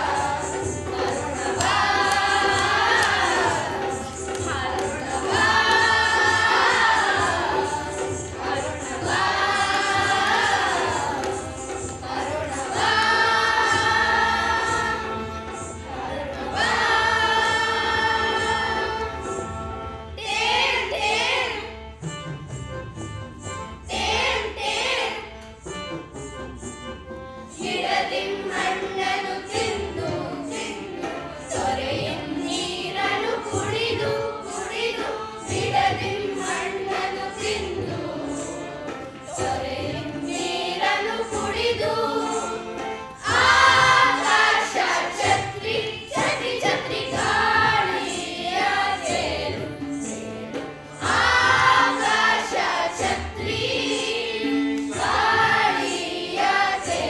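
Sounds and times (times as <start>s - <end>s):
chorus of voices singing: 0.0s - 21.9s, 23.8s - 25.4s, 27.5s - 57.0s
steady percussion beat: 0.0s - 57.0s.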